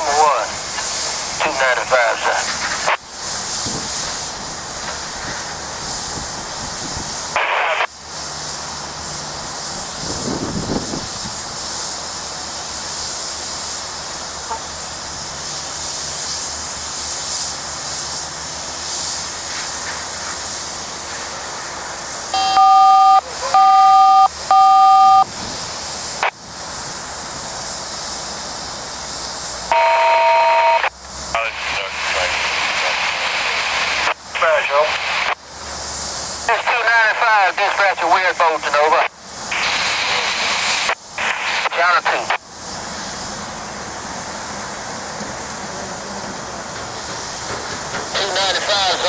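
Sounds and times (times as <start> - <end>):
train wheels hissing on track: 0.0 - 23.6, 24.2 - 29.8, 30.9 - 49.0
short electronic beeps: 22.4 - 25.3, 29.7 - 30.9.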